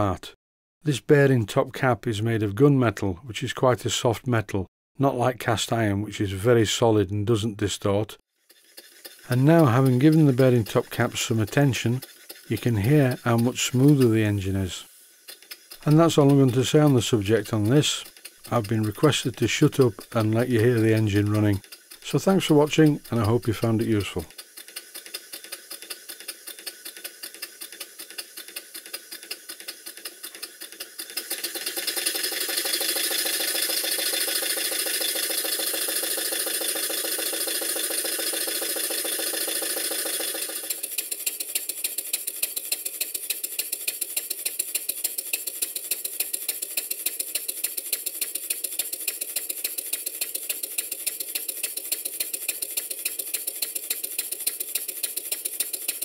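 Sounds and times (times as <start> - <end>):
steam engine running: 8.4 - 56.0.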